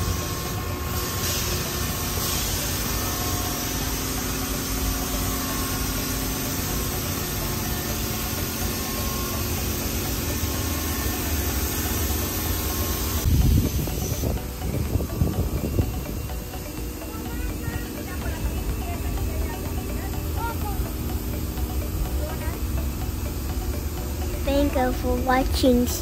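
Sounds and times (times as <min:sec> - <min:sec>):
car wash equipment humming: 0:00.0 - 0:26.0.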